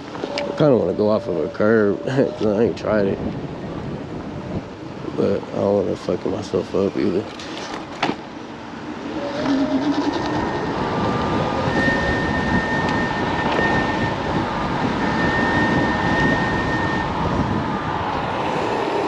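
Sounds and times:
wind rushing on microphone: 0.0 - 7.3, 8.6 - 19.0
road rumble: 0.0 - 19.0
thin high whine: 8.9 - 19.0.

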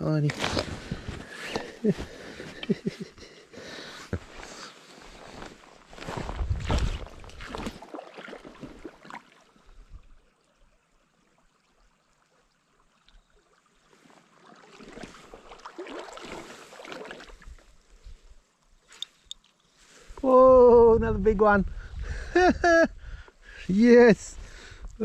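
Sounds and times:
river water splashing: 6.6 - 17.8.

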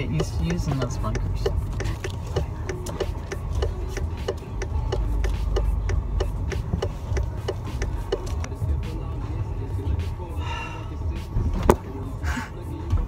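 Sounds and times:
turn signal ticking: 0.0 - 10.4
low car rumble: 0.0 - 13.0.

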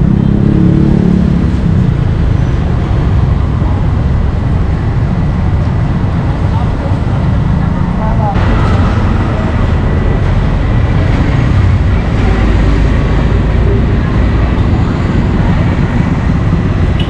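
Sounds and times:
low rumbling noise: 0.0 - 17.0
faint voices: 11.8 - 16.2.

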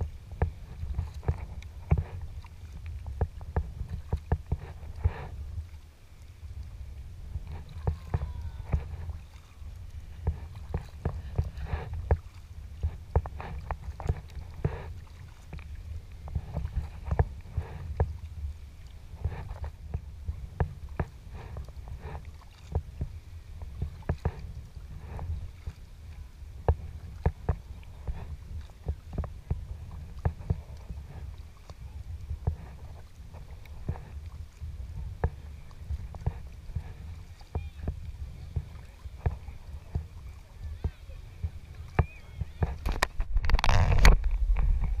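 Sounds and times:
paddle splashing water: 0.0 - 45.0
water lapping at hull: 0.0 - 45.0
low rumble: 23.7 - 45.0.

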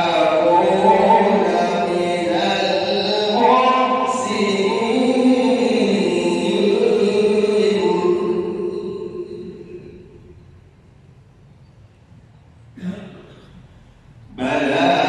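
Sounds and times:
man chanting melodically: 0.0 - 10.1, 14.3 - 15.0.

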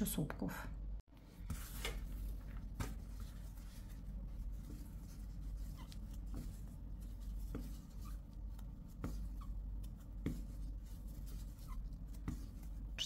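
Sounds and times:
low room hum: 0.0 - 13.0
cord rubbing and squeaking: 4.7 - 12.8.

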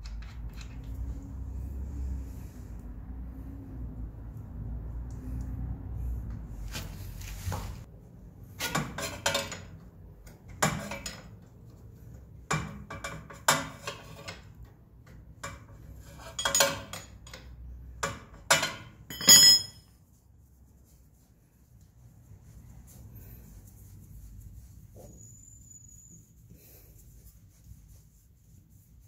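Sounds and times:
metal tools clinking: 18.5 - 19.9.

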